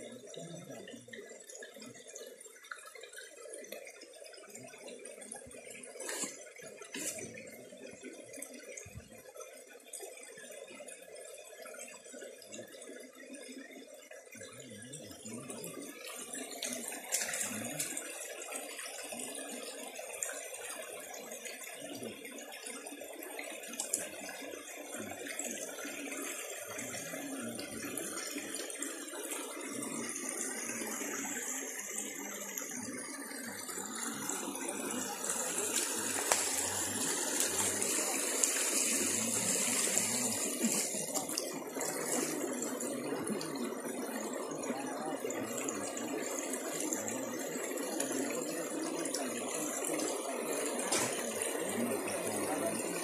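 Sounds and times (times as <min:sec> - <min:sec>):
stream water rushing: 0:33.6 - 0:53.0.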